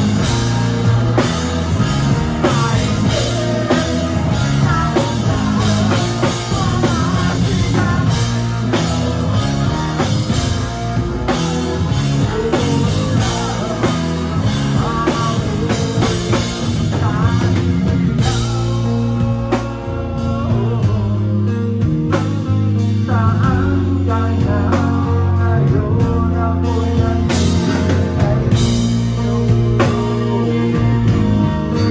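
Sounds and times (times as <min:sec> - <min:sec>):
drum kit: 0:00.0 - 0:31.9
electric guitars: 0:00.0 - 0:31.9
keyboard: 0:00.0 - 0:31.9
man singing lead vocals: 0:00.0 - 0:31.9.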